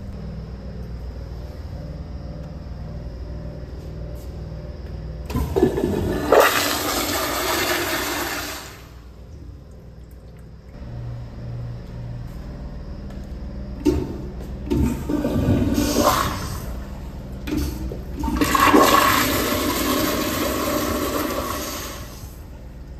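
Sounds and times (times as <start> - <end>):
toilet flushing: 5.3 - 9.1, 13.8 - 22.5
rush of flush water: 5.6 - 9.0, 18.2 - 22.3.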